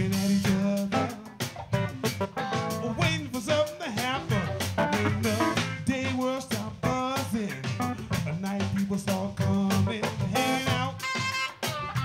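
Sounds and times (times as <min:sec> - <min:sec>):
drum kit beat: 0:00.0 - 0:12.0
electric bass line: 0:00.0 - 0:12.0
electric guitar: 0:00.0 - 0:12.0
keyboards: 0:00.0 - 0:12.0
saxophone: 0:10.4 - 0:12.0.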